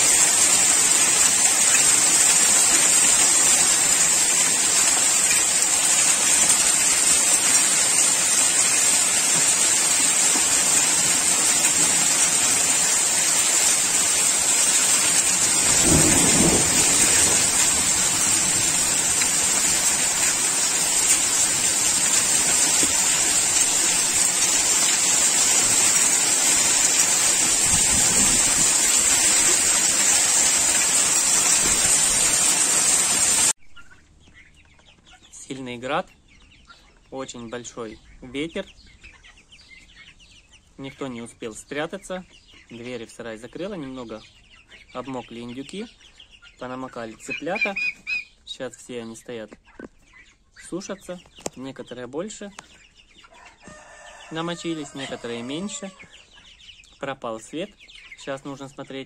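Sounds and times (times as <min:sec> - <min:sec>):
heavy rain and hail on paving: 0:00.0 - 0:33.6
low rumble of thunder: 0:15.4 - 0:19.5.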